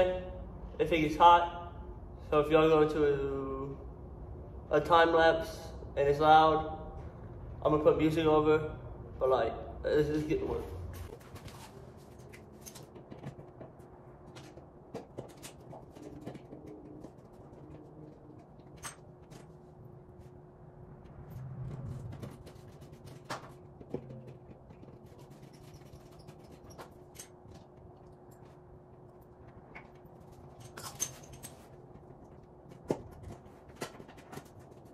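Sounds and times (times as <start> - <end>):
faint steady hum: 0.0 - 34.9
low rumble: 20.4 - 22.7.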